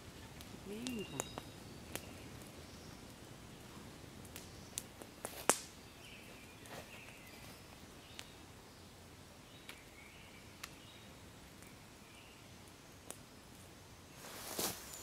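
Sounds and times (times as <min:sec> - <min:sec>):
campfire crackling: 0:00.0 - 0:15.0
faint steady hiss: 0:00.0 - 0:15.0
fire popping: 0:00.0 - 0:15.0.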